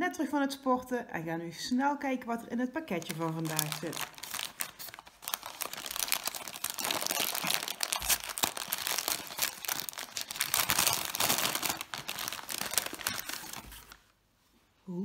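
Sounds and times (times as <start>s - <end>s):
paper bag crinkling: 2.9s - 14.1s.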